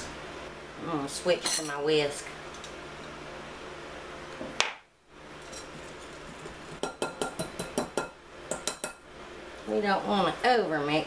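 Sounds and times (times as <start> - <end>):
whisk clinking against glass bowl: 5.5 - 9.0.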